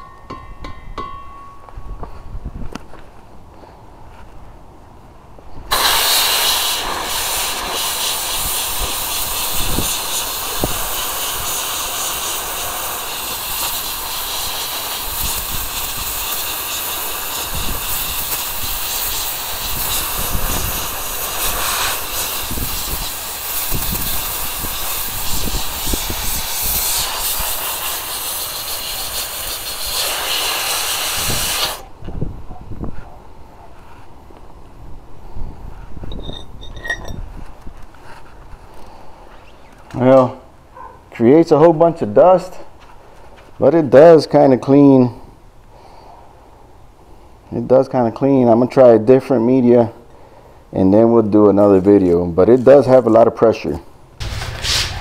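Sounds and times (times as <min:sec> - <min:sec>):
abrasive blaster hissing: 0:05.7 - 0:31.8, 0:54.2 - 0:55.0.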